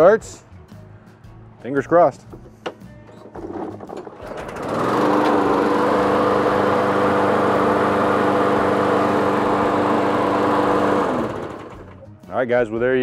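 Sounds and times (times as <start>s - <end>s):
lawn mower engine running: 3.2s - 12.0s.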